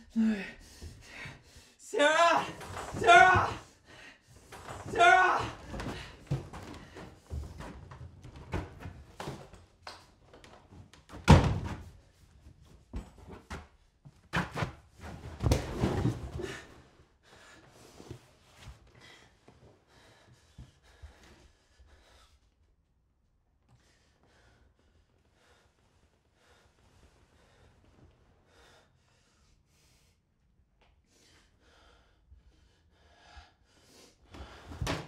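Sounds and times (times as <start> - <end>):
knocks and movement: 2.0 - 3.6, 4.4 - 9.7
footsteps on wooden floorboards: 4.5 - 9.6.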